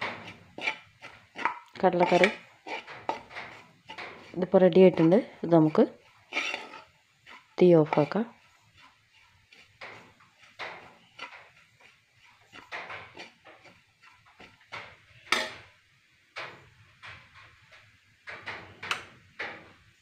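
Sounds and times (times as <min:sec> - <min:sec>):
metal spoon scraping frying pan: 0:00.0 - 0:15.7.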